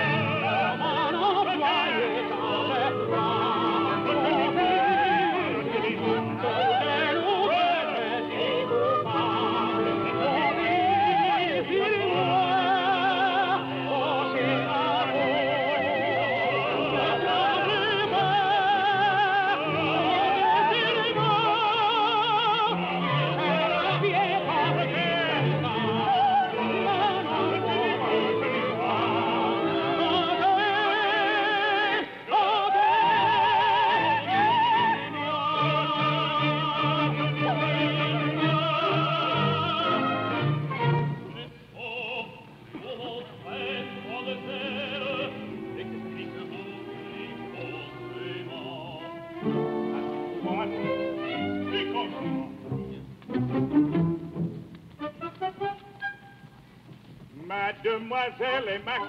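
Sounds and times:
operatic voices singing: 0.0s - 53.1s
orchestra: 0.0s - 59.0s.

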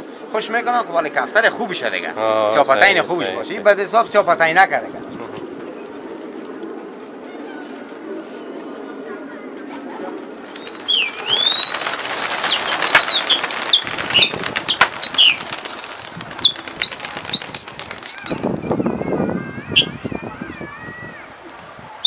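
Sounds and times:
pigeon wings flapping: 10.0s - 19.1s
high whistles and chirps: 10.6s - 19.0s, 19.6s - 20.1s.

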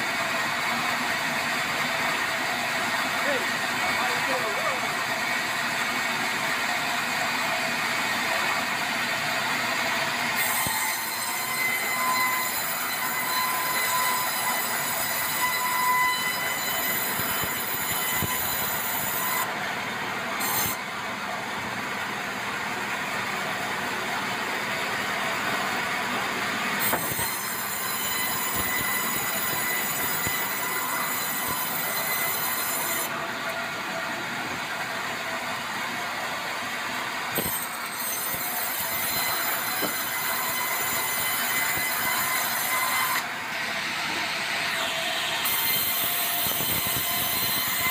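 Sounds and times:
band saw running: 0.0s - 47.9s
high-pitched saw blade whine: 8.0s - 21.4s, 25.1s - 34.2s, 34.8s - 47.9s.

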